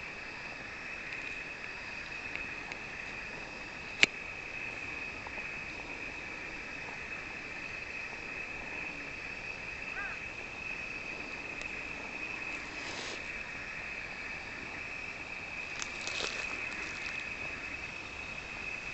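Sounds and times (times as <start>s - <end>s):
high insect trill: 0.0s - 18.9s
rustling: 12.4s - 13.3s, 15.7s - 17.4s.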